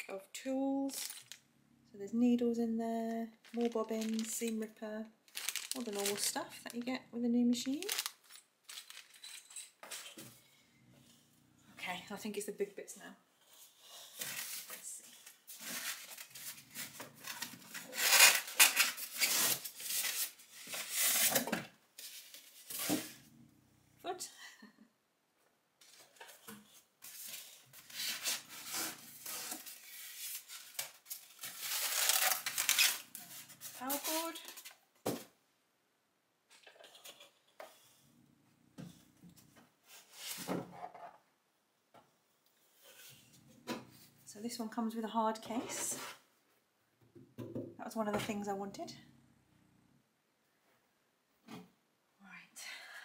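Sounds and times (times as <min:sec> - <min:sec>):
cardboard and packing rustling: 0:03.4 - 0:07.0, 0:07.6 - 0:09.4, 0:14.1 - 0:23.2, 0:25.8 - 0:35.3.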